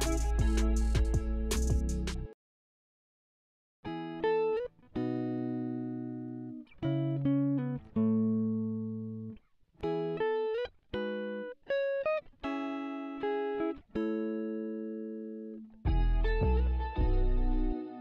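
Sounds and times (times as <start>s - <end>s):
clean electric guitar chords: 0.0s - 1.8s, 12.5s - 18.0s.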